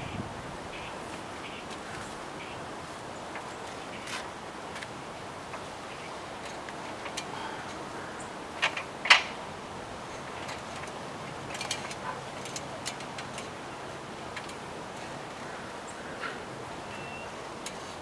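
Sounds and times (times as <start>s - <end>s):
metal ladder clicks and knocks: 6.3s - 7.8s, 8.5s - 13.6s, 14.2s - 15.1s.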